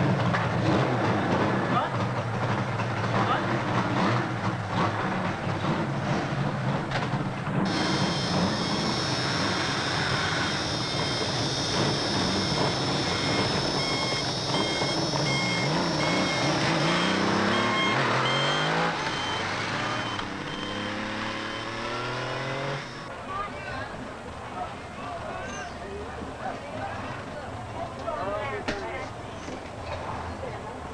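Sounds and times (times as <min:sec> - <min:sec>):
motorcycle engines accelerating: 0:00.0 - 0:23.1
short high beep: 0:07.7 - 0:22.4.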